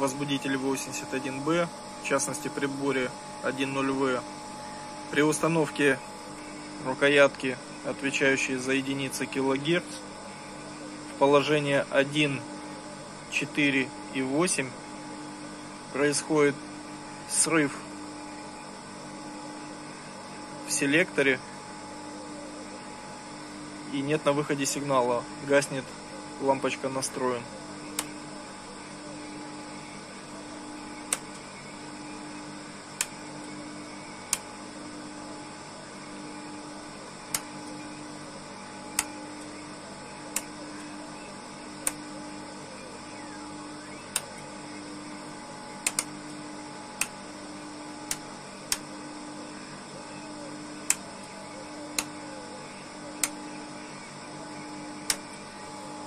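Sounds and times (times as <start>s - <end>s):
steady equipment hum: 0.0s - 56.0s
rotary switch clicks: 27.8s - 28.4s, 30.5s - 31.6s, 32.2s - 35.0s, 36.9s - 49.3s, 50.6s - 56.0s.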